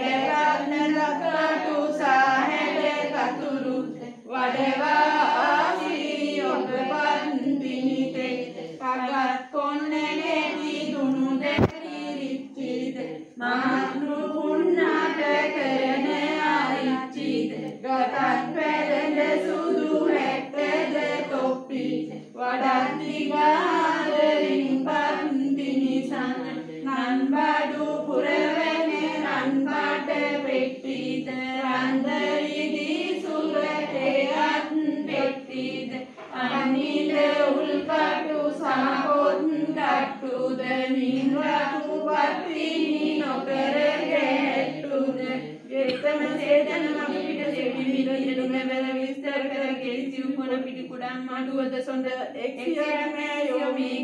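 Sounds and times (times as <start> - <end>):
women chanting prayers in unison: 0.0 - 54.0.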